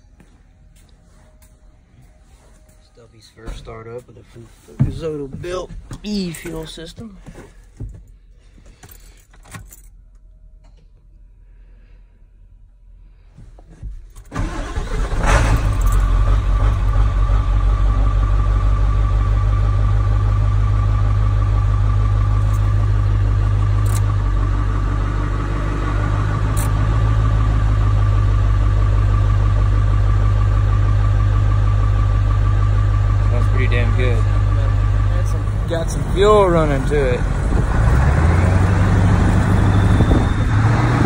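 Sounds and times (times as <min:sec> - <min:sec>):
diesel engine cranking and idling: 0:14.1 - 0:41.0.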